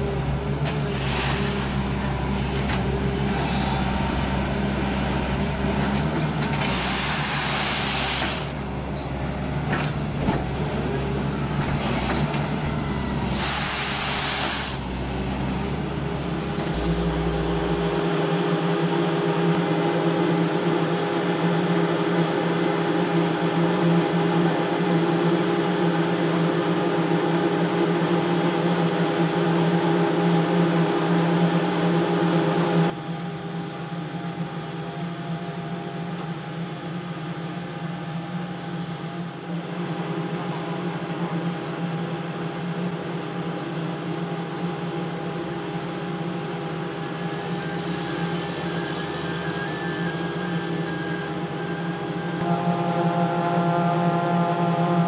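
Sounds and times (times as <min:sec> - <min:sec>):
diesel engine: 0:00.0 - 0:55.0
rotary broom scrubbing asphalt: 0:06.6 - 0:08.8
concrete paver droning: 0:44.8 - 0:55.0.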